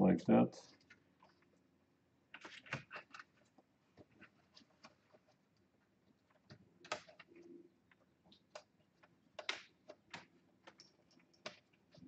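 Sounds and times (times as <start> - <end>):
plastic laptop parts clicking: 6.3 - 12.0.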